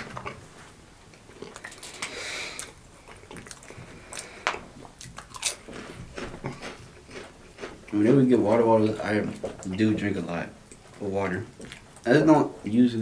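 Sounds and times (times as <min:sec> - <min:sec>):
crackers crunching while chewed: 0:01.1 - 0:10.0, 0:10.7 - 0:12.2.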